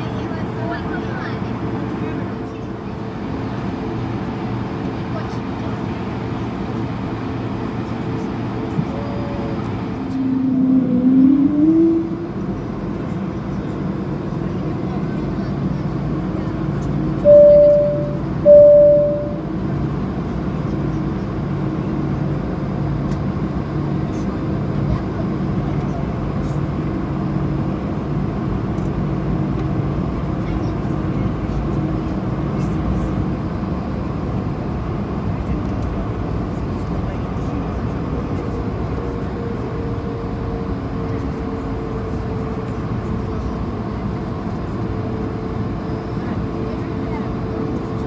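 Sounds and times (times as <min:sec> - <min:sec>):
jet engines humming: 0:00.0 - 0:48.0
steady higher whine: 0:09.4 - 0:13.1, 0:17.2 - 0:19.8.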